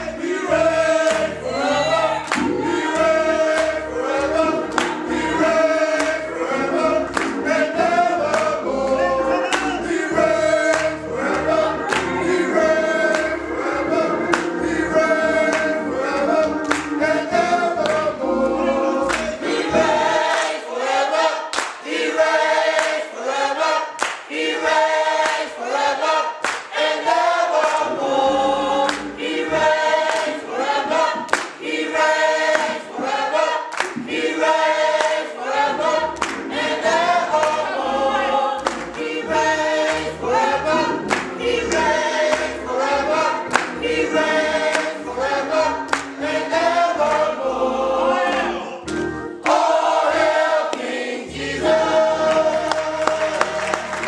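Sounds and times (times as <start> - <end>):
gospel choir singing: 0.0 - 54.0
hands clapping: 1.0 - 1.6, 2.2 - 6.3, 7.0 - 8.6, 9.4 - 10.0, 10.6 - 13.4, 14.3 - 18.1, 19.0 - 20.6, 21.5 - 22.0, 22.6 - 23.1, 23.9 - 27.9, 28.8 - 32.9, 33.7 - 37.8, 38.6 - 47.4, 48.2 - 49.8, 50.7 - 51.0, 52.2 - 54.0.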